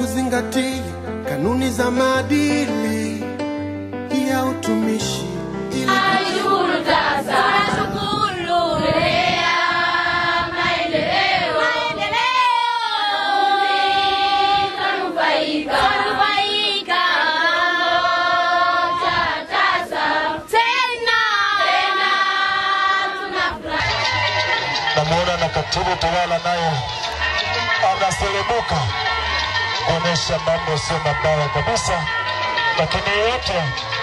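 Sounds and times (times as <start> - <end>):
girls singing in chorus: 5.9 - 24.6.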